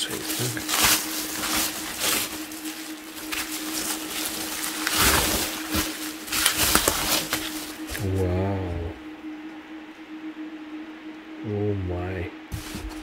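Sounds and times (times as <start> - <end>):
packing material rustling: 0.0 - 8.0
person humming: 7.8 - 9.5, 11.4 - 12.4.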